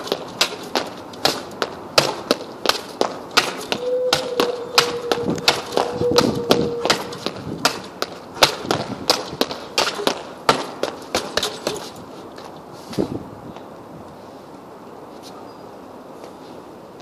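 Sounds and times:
punches hitting heavy bag: 3.4 - 9.2.

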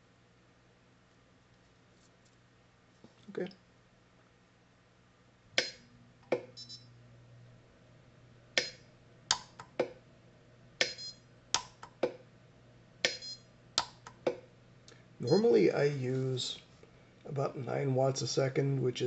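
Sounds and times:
welder snaps: 5.6 - 6.5, 8.6 - 10.0, 10.8 - 12.2
high ringing tone: 6.5 - 6.9, 10.8 - 11.2, 13.1 - 13.5, 15.2 - 15.7.

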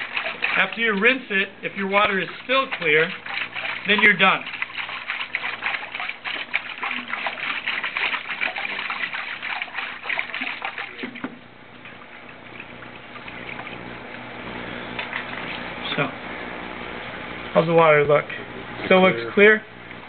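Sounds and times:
water sloshing in a bucket: 0.0 - 16.1.

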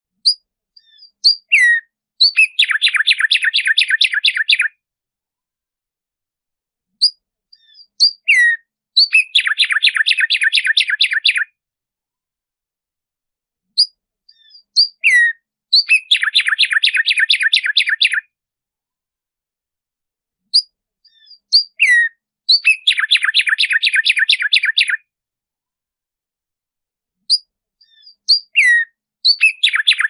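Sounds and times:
sparrow singing: 0.2 - 4.8, 7.0 - 11.6, 13.7 - 18.3, 20.4 - 25.1, 27.3 - 30.0.

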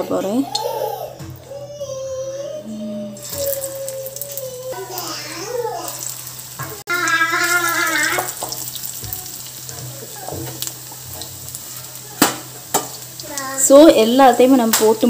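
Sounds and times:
batter sizzling in hot oil: 3.2 - 15.0.

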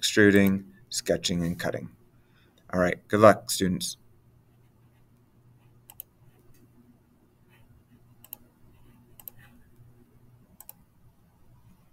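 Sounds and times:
steady low hum: 0.0 - 11.9
computer mouse clicking: 5.8 - 6.7, 8.1 - 9.9, 10.6 - 10.9.

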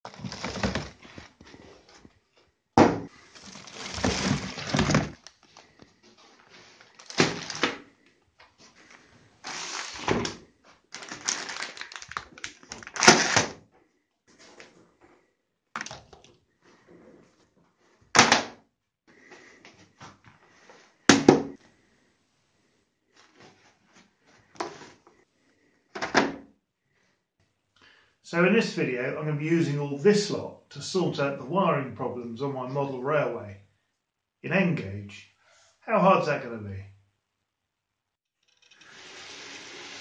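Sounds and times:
objects thunking and knocking: 0.0 - 2.1, 2.8 - 6.0, 21.1 - 21.7
rustling of handled objects: 0.0 - 2.5, 3.1 - 18.0.

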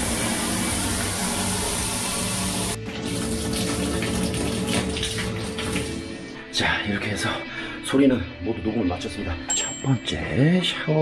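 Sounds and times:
shower water pouring into bathtub: 0.0 - 6.4
hand splashing in water stream: 3.0 - 6.3.

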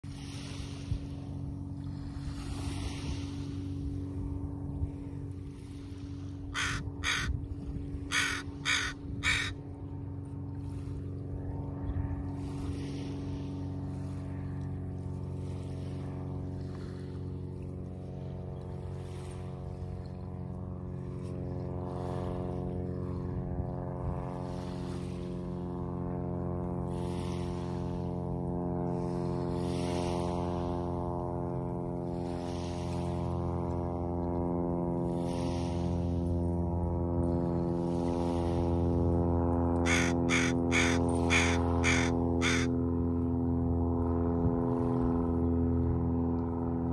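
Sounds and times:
boat engine drone: 0.0 - 46.9
crows cawing: 6.5 - 7.4, 8.1 - 9.6, 39.8 - 42.8.

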